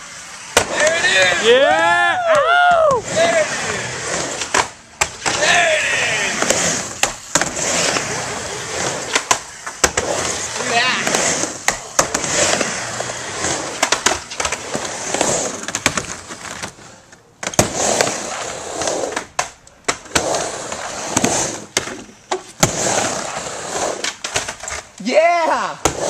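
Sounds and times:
skateboard wheels rolling on wood: 0.0s - 25.1s, 25.8s - 26.0s
skateboard clacks: 4.2s - 12.8s, 13.4s - 16.8s, 17.4s - 25.0s.

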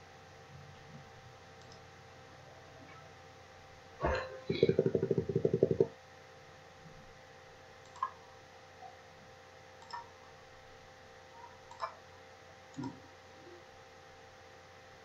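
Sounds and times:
low electrical hum: 0.0s - 15.0s
computer mouse clicks: 1.6s - 1.9s, 7.8s - 8.2s, 9.8s - 10.1s, 11.6s - 12.0s, 12.7s - 13.0s.

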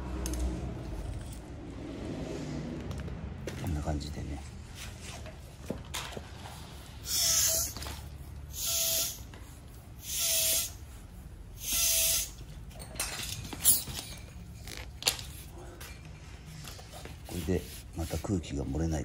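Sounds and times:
hissing bicycle pump strokes: 7.0s - 12.4s.

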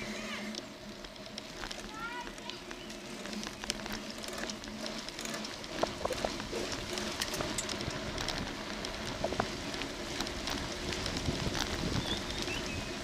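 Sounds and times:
bicycle rattles and clicks: 0.0s - 13.0s
bicycle tyres rolling on tarmac: 0.0s - 13.0s
wind noise: 3.1s - 13.0s.

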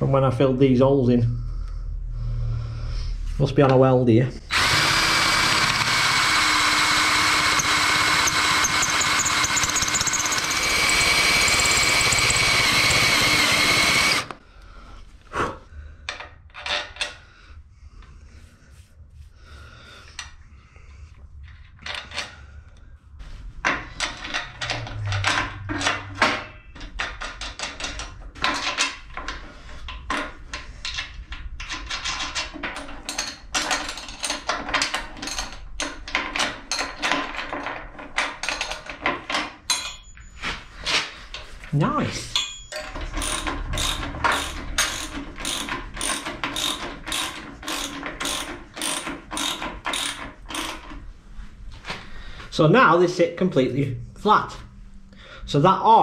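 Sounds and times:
metal parts clicking and knocking: 4.5s - 14.3s, 16.1s - 17.2s, 23.6s - 40.2s, 42.3s - 51.0s
drill whining into steel: 4.5s - 14.4s, 42.7s - 50.9s.

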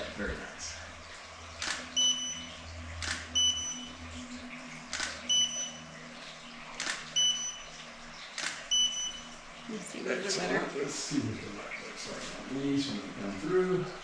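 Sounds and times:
camera shutter click: 1.6s - 1.9s, 3.0s - 3.3s, 4.9s - 5.2s, 6.8s - 7.1s, 8.4s - 8.7s.

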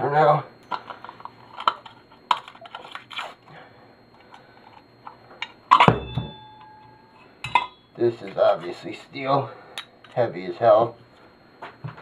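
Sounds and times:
metal lamp parts clicking: 0.6s - 3.2s, 4.2s - 7.8s
metallic clank ringing: 5.4s - 8.0s.

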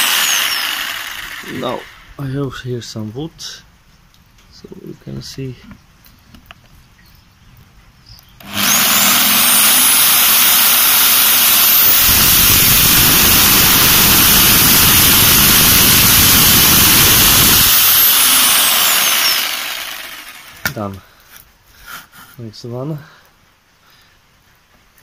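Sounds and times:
jigsaw blade cutting wood: 0.0s - 2.0s, 8.4s - 20.8s
jigsaw motor running: 0.0s - 2.0s, 8.4s - 20.6s.

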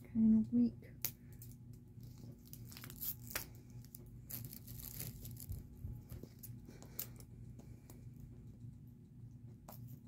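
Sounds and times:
plastic wrap crackling: 1.4s - 7.2s.

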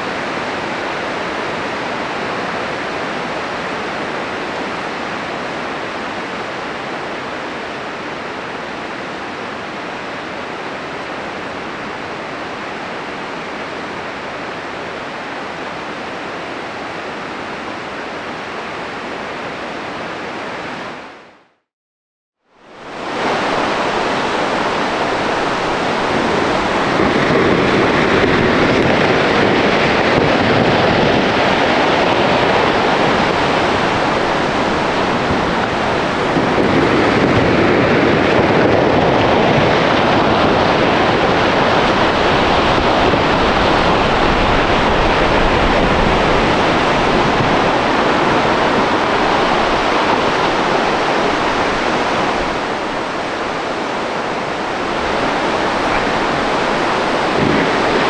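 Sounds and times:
wind and water rushing: 0.0s - 21.4s, 22.5s - 58.0s
wind on microphone: 22.8s - 58.0s.

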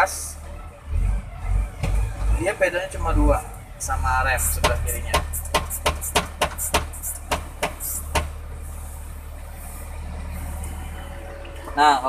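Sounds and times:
diesel engine idling: 0.0s - 12.0s
sharp clicks and knocks: 4.6s - 8.3s.

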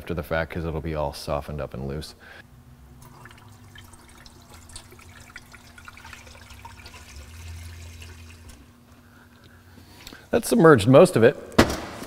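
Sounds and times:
low steady hum: 0.0s - 11.6s
liquid trickling and splashing: 3.0s - 8.8s.

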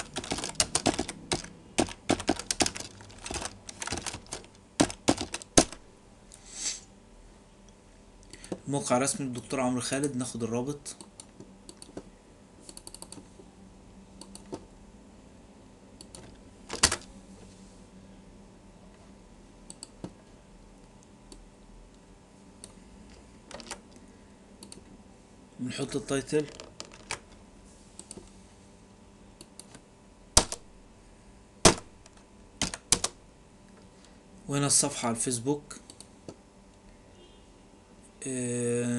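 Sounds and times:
keyboard taps: 0.2s - 5.8s
keyboard and mouse clicks: 11.0s - 12.0s, 12.6s - 13.2s, 14.2s - 14.6s, 16.0s - 17.1s, 19.7s - 20.2s, 24.6s - 24.9s, 29.4s - 29.8s.

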